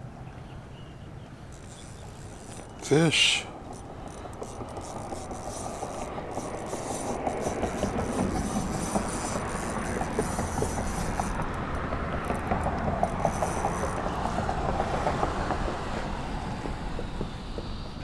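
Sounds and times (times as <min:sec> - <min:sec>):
fishing reel gears clicking: 0:01.5 - 0:14.6.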